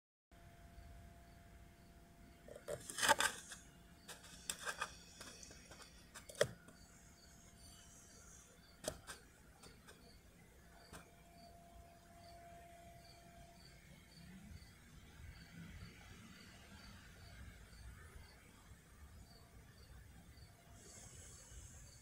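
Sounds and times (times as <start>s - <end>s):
faint steady tone: 0.4s - 22.0s
phone handling clicks and rustles: 2.5s - 6.7s, 8.8s - 10.0s.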